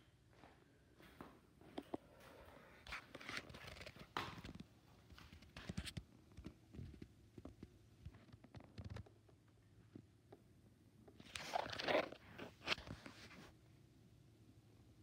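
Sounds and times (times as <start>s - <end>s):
handling rustles and clicks: 11.1s - 13.4s.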